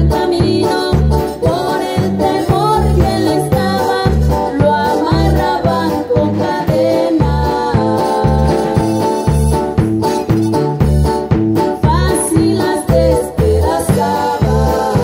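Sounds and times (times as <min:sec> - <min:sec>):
woman singing into microphone: 0:00.0 - 0:09.2, 0:11.8 - 0:15.0
drum kit beat: 0:00.0 - 0:15.0
electric bass: 0:00.0 - 0:15.0
electric guitar: 0:00.0 - 0:15.0
keyboard: 0:00.0 - 0:15.0.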